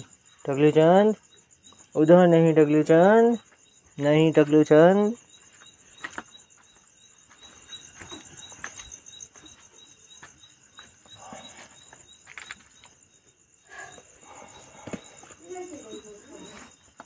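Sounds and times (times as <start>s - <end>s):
crickets chirring: 0.0s - 17.0s
footsteps in sandals on dirt: 3.3s - 13.1s.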